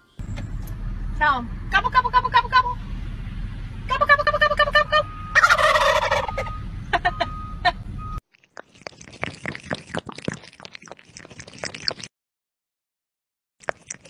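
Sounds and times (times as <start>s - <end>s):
turkeys gobbling: 4.8s - 7.8s
kitten lapping water: 8.3s - 12.1s, 13.6s - 14.0s.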